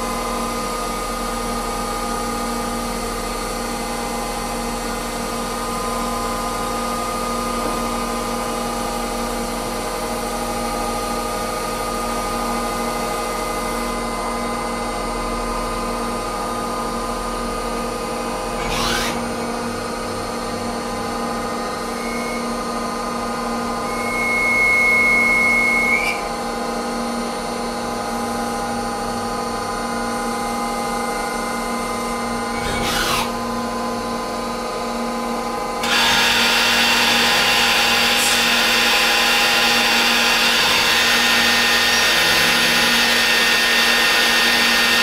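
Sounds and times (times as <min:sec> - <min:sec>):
lathe machine hum: 0:31.0 - 0:45.0.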